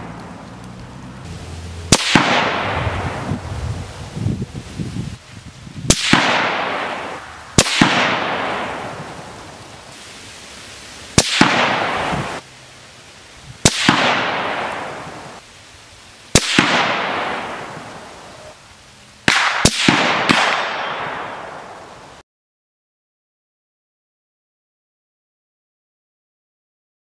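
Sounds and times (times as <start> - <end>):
rifle shots with echo: 1.9 - 3.3, 5.9 - 9.3, 11.2 - 12.4, 13.6 - 15.3, 16.4 - 17.8, 19.3 - 21.8.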